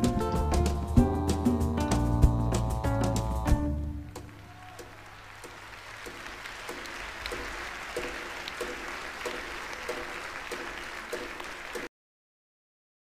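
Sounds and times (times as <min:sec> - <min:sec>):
audience applause: 0:04.0 - 0:11.9
steady ticking beat: 0:05.4 - 0:11.9.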